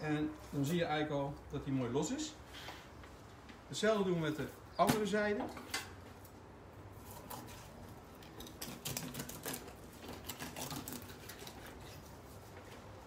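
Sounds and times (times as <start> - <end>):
knife crackling through fish bones: 7.1 - 12.0.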